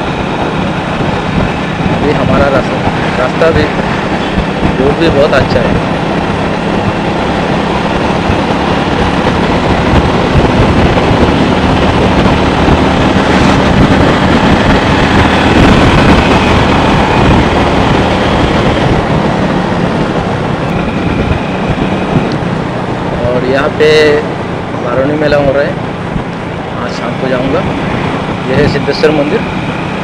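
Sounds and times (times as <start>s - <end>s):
motorcycle engine drone: 0.0s - 30.0s
wind and road noise: 0.0s - 30.0s.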